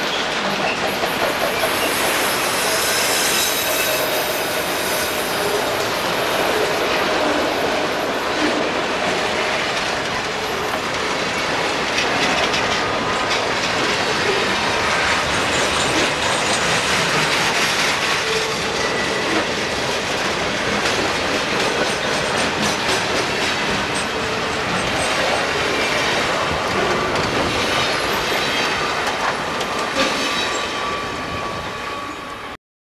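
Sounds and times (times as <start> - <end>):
train wheels rumbling on rails: 0.0 - 32.6
high wheel squeals: 1.4 - 5.9, 29.7 - 32.6.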